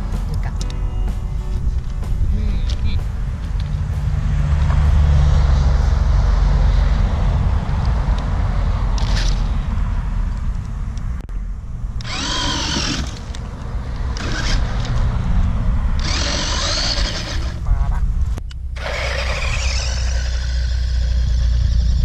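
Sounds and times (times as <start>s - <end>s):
steady low rumble: 0.0s - 22.0s
electric motor whining: 12.0s - 15.1s, 15.9s - 18.1s, 18.8s - 22.0s.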